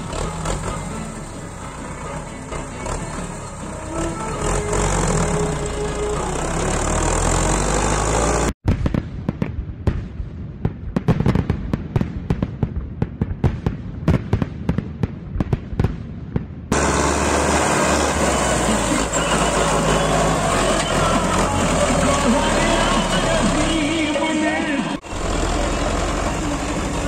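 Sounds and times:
tractor engine running: 0:00.0 - 0:08.6, 0:16.7 - 0:27.0.

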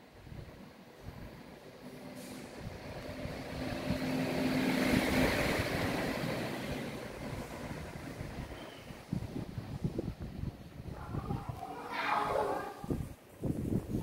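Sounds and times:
vehicle passing by: 0:02.2 - 0:09.0.

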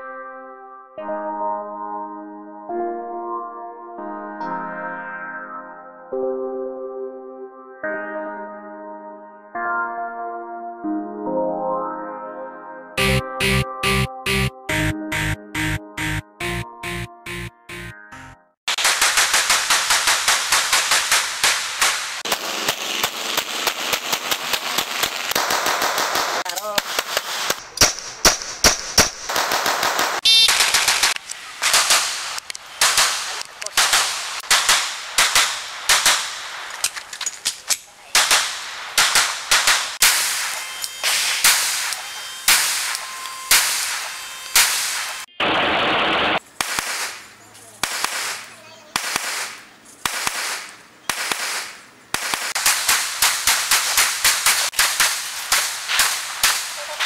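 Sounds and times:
pistols firing rapidly: 0:18.7 - 0:36.9, 0:37.5 - 0:45.3, 0:46.6 - 0:57.0.

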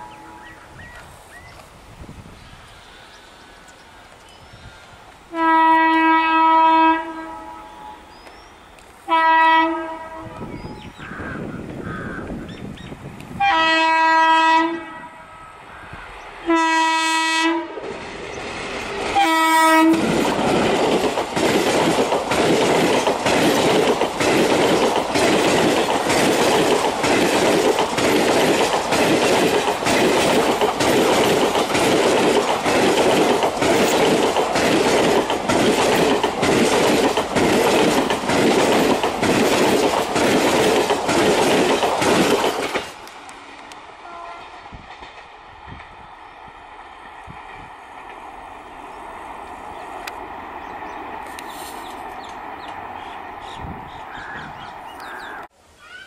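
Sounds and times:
locomotive horn blasts: 0:00.0 - 0:00.6, 0:05.3 - 0:08.1, 0:09.1 - 0:10.8, 0:13.4 - 0:15.6, 0:16.4 - 0:17.8, 0:19.2 - 0:20.1, 0:44.0 - 0:44.6
train passing rumbling: 0:00.0 - 0:55.6
wheels clacking over rail joints: 0:17.9 - 0:46.0.

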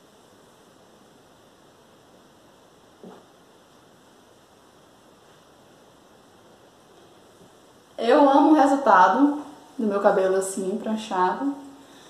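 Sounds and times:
room tone hiss: 0:00.0 - 0:12.0.

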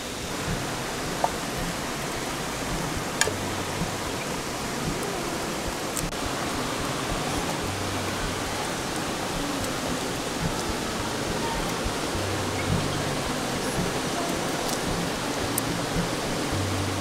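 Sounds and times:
river water rushing: 0:00.0 - 0:17.0.

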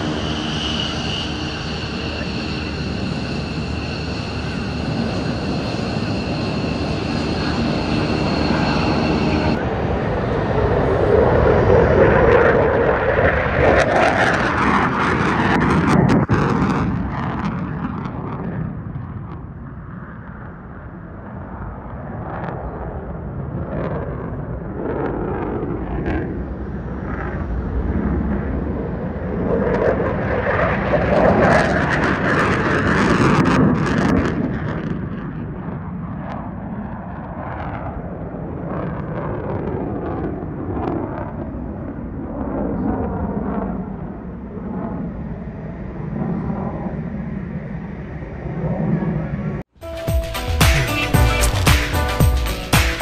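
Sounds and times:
jet engine roar: 0:00.0 - 0:49.8
jet engine whine: 0:00.0 - 0:52.8.

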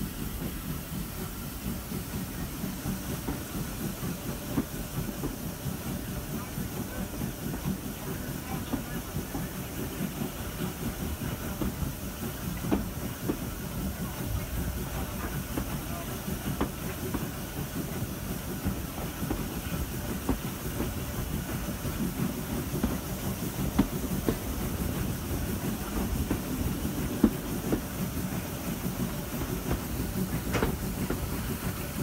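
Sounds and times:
steady steam hiss: 0:00.0 - 0:32.0
train wheels rumbling on rail: 0:00.0 - 0:32.0
wheels clicking over track: 0:18.6 - 0:32.0.

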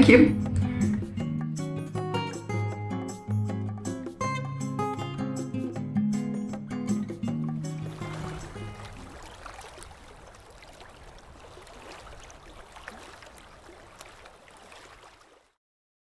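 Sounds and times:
trickling stream: 0:07.3 - 0:15.6
small water drips: 0:07.4 - 0:15.6.

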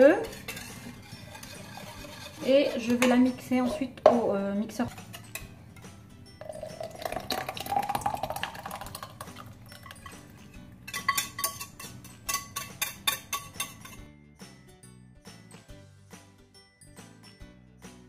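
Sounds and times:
whisk clinking on saucepan: 0:00.0 - 0:03.5, 0:06.4 - 0:14.1
thick sauce pouring: 0:06.4 - 0:10.2.

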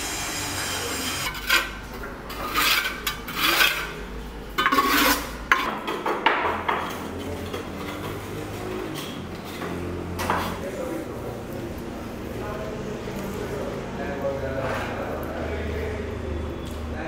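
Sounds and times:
bowls scraping and clinking: 0:00.9 - 0:05.9, 0:06.8 - 0:10.6.

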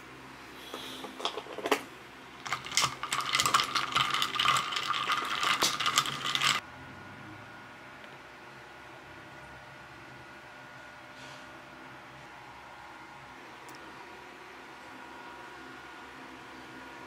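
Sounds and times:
ice cubes clinking in glass: 0:02.4 - 0:06.6.

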